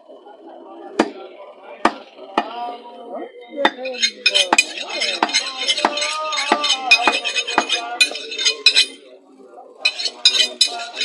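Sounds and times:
knife being sharpened: 3.8 - 9.0, 9.8 - 11.0.

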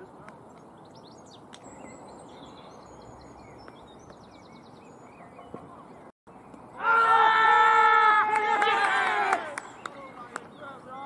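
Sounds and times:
birds chirping and singing: 0.0 - 7.1, 9.6 - 11.0
outdoor background hush: 0.0 - 11.0.

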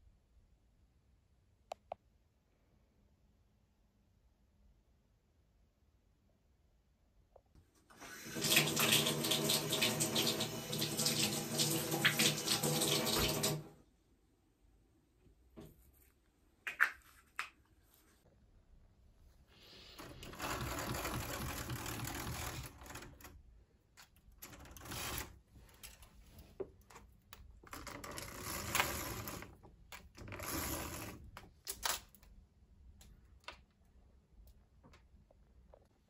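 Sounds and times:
roller blind rattling: 20.0 - 23.4, 24.4 - 25.4, 27.7 - 29.6, 30.2 - 31.3.

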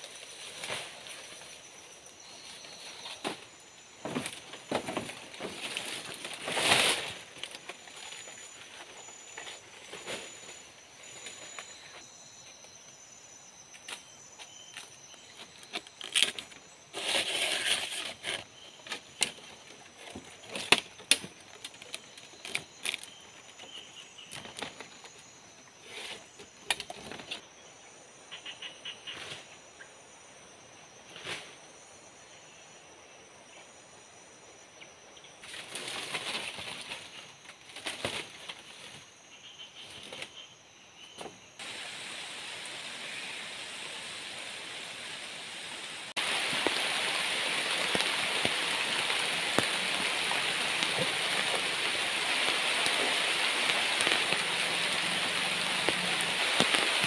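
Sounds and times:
palm-leaf thatch rustling: 0.0 - 12.1, 13.8 - 27.4, 35.4 - 39.2, 46.1 - 57.0.

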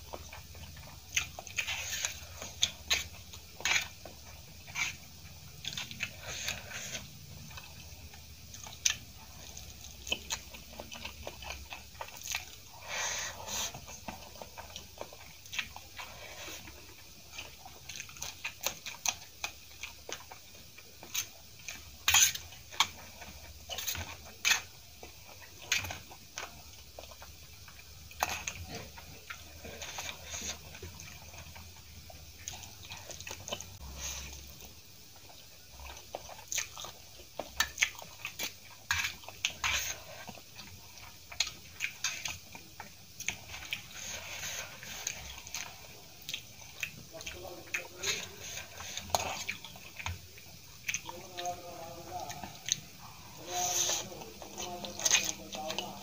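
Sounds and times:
wet chewing with clicks: 0.0 - 56.0.

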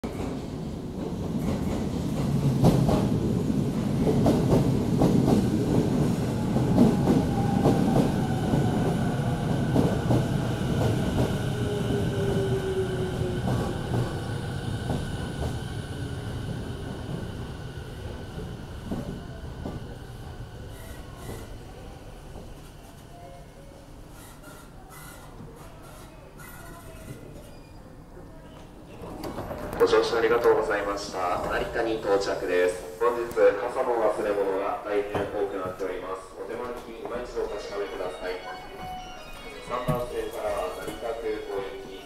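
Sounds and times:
train rumble: 0.0 - 23.0.

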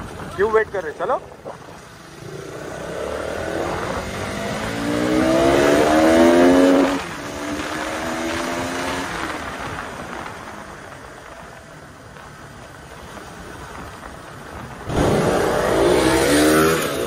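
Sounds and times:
motorcycle engine accelerating: 1.5 - 10.4, 14.8 - 17.0.

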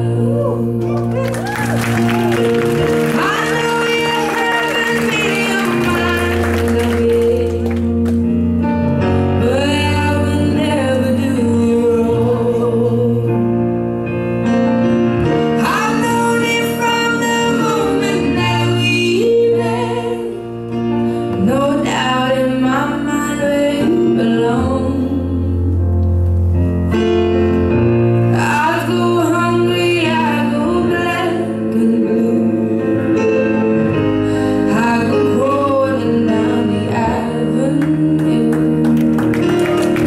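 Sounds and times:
person singing with vibrato: 2.0 - 8.0, 28.3 - 39.2.

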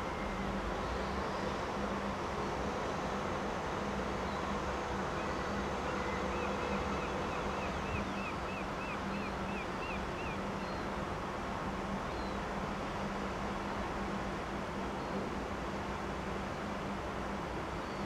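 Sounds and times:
wind: 0.0 - 18.0.

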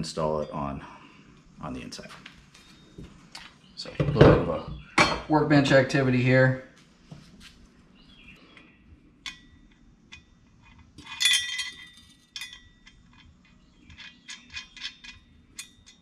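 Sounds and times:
metal bracket and bolts clinking: 9.2 - 13.3
ringing metallic clatter: 11.0 - 13.3.

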